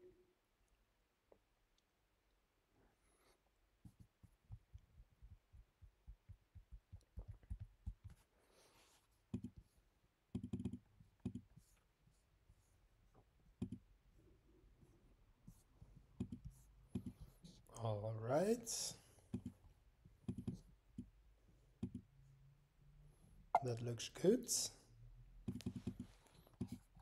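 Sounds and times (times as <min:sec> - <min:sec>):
laptop keys and trackpad tapping: 0:03.8 - 0:08.3, 0:09.3 - 0:09.7, 0:10.3 - 0:11.7, 0:13.6 - 0:13.8, 0:16.2 - 0:17.2, 0:20.2 - 0:21.1, 0:25.5 - 0:26.9.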